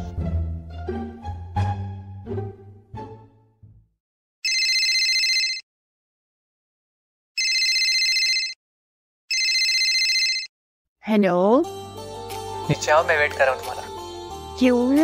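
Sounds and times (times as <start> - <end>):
telephone ringing: 4.4 - 5.6, 7.4 - 8.6, 9.3 - 10.5.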